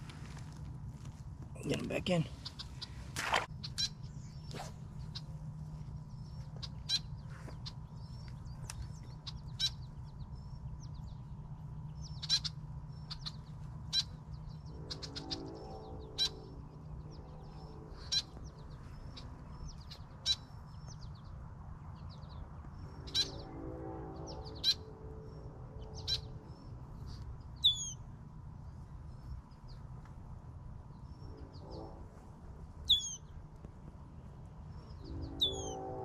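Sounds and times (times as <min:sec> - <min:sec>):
low rumble: 0:00.0 - 0:36.0
bird chirps: 0:03.6 - 0:21.3, 0:22.0 - 0:28.1, 0:32.8 - 0:33.4, 0:34.7 - 0:36.0.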